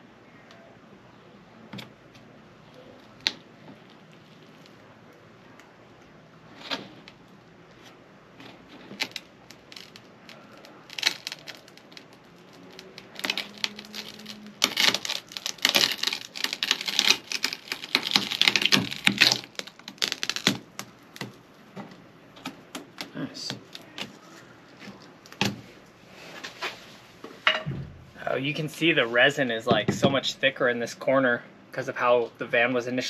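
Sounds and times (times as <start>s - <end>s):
resin crackling and snapping: 1.7s - 26.0s.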